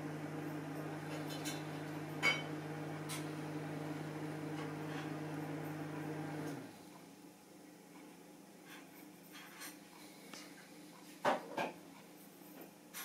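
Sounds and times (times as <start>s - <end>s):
electrical machine hum winding down: 0.0s - 6.7s.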